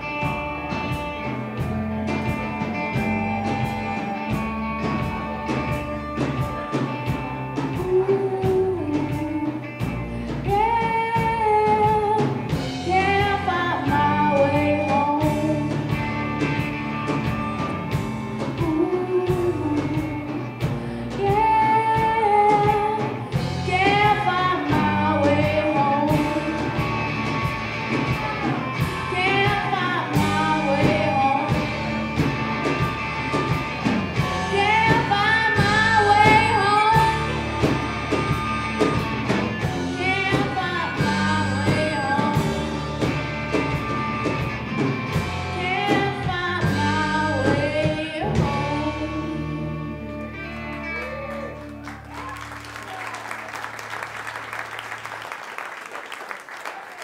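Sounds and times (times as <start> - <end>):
drum kit beat: 0.0 - 49.0
electric guitars: 0.0 - 57.0
person singing: 2.4 - 16.0, 18.4 - 27.1, 27.9 - 31.8, 39.6 - 43.1, 45.5 - 51.6.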